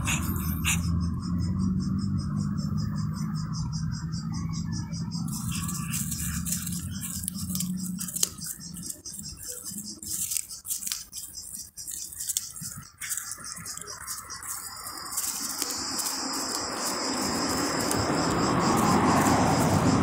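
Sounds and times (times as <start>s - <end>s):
crickets chirping: 0.0s - 20.0s
plastic sheet crinkling: 5.3s - 18.0s
cat chewing: 5.3s - 19.9s.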